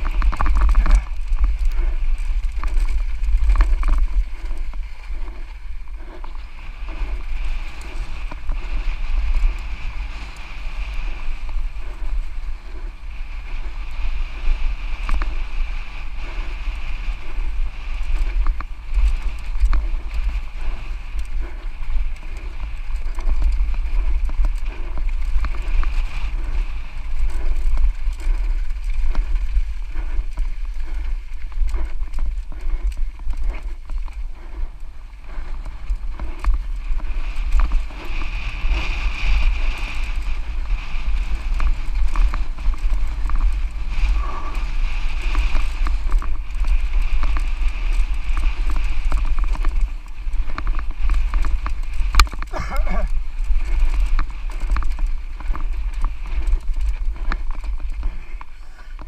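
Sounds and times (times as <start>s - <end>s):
bike tyres on dirt and rock: 0.0s - 59.0s
wind rumbling on microphone: 0.0s - 59.0s.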